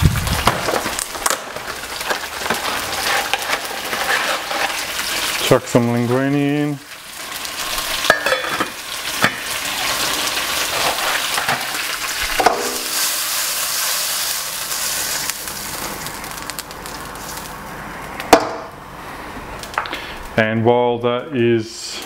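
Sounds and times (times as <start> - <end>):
butter and garlic sizzling in pan: 0.7 - 17.6.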